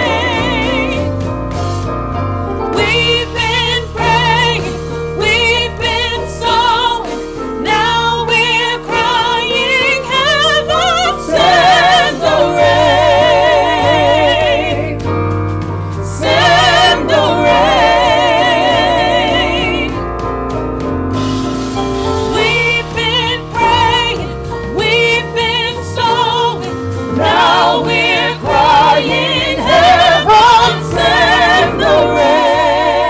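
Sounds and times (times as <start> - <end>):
keyboard bass and drums: 0.0 - 33.0
person singing gospel: 2.8 - 15.0, 22.4 - 33.0.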